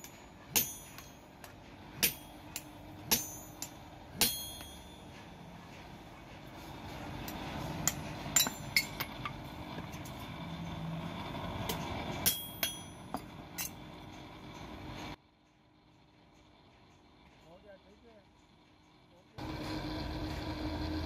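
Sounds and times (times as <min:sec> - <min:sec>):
metal tools clinking: 0:07.8 - 0:10.8.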